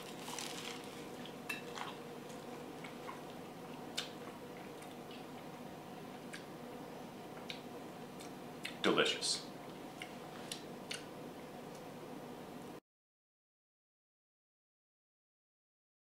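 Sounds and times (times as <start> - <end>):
person chewing: 0.0 - 5.6, 8.2 - 8.8
low room hum: 0.0 - 12.8.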